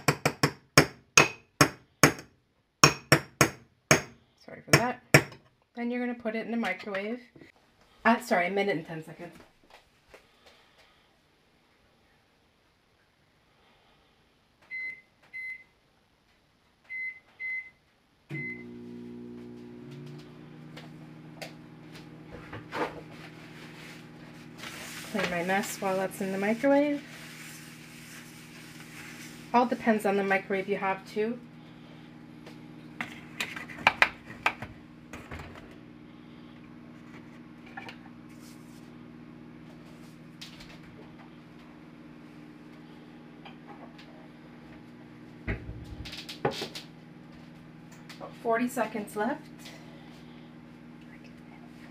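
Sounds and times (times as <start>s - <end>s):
microwave oven humming: 18.3s - 51.9s.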